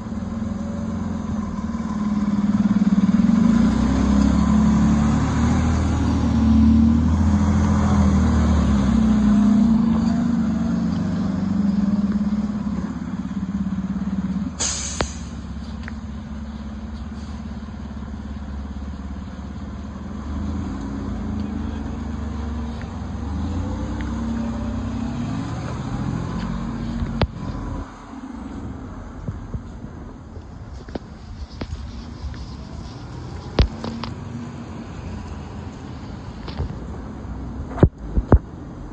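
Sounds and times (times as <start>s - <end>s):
diesel engine rumble: 0.0s - 38.9s
short high hiss: 14.6s - 15.4s.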